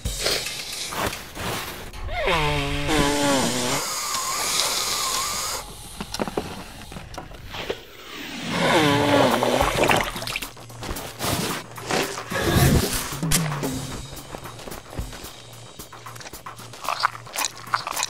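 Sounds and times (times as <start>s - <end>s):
rasping snuffly noise: 7.5s - 18.0s.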